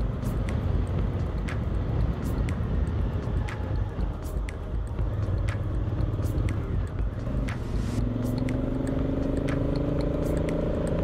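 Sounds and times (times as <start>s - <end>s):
motorcycle engine hum: 0.0s - 11.0s
sharp ticks: 8.2s - 11.0s.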